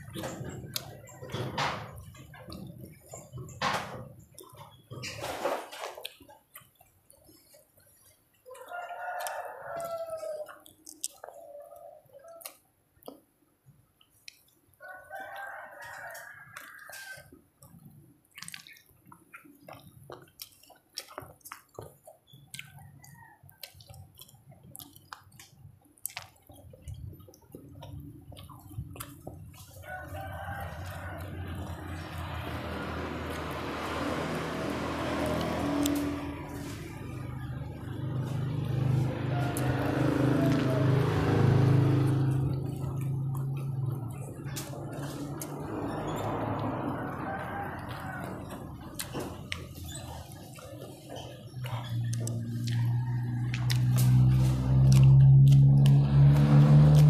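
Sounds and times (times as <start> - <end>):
wet chewing and lip smacks: 0.0 - 3.6, 4.2 - 5.2, 5.8 - 57.0
small mouth clicks: 9.2 - 11.5, 14.0 - 14.6, 17.6 - 29.8, 51.5 - 57.0.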